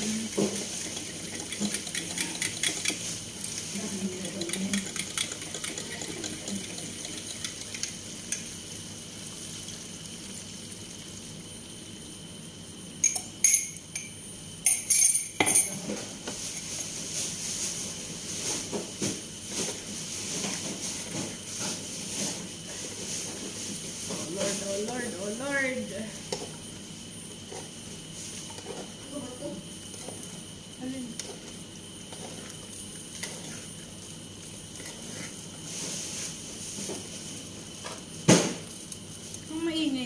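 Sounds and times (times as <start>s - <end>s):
pots and pans clinking: 0.2s - 3.2s, 13.0s - 16.8s.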